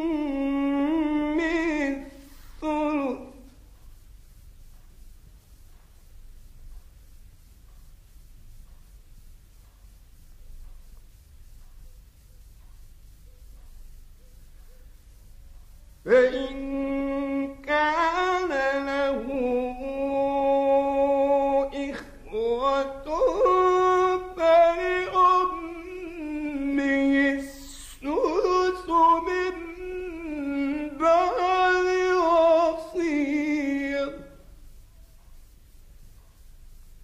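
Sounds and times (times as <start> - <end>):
man chanting melodically: 0.0 - 3.8, 15.9 - 34.5.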